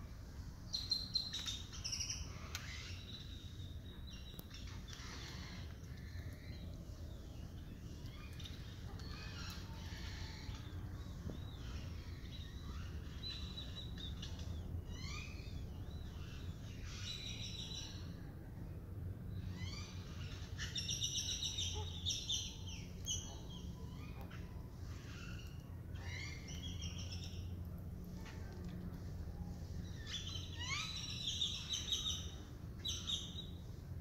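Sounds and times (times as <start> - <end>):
low background rumble: 0.0 - 34.0
songbirds chirping and singing: 28.3 - 33.8.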